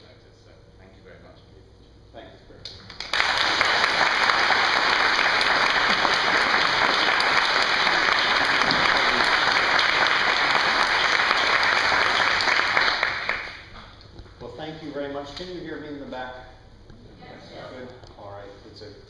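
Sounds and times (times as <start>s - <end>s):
audience applauding: 2.9s - 13.7s.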